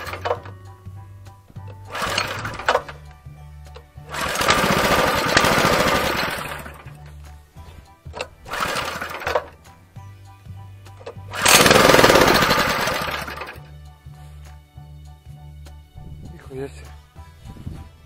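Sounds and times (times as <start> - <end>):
small petrol engine revving: 0.0 - 0.5, 1.7 - 3.0, 4.0 - 7.0, 8.2 - 9.6, 11.0 - 13.7.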